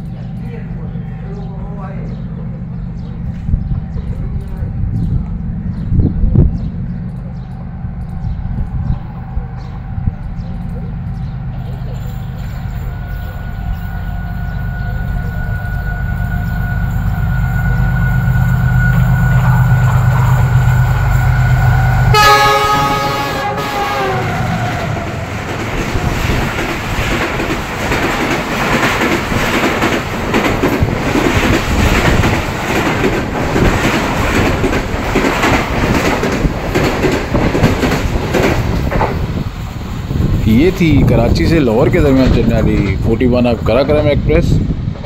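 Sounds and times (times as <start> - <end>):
diesel locomotive engine drone: 0.0 - 45.0
train horn: 12.8 - 20.5, 21.1 - 25.3
train wheels clattering over rail joints: 24.9 - 40.4.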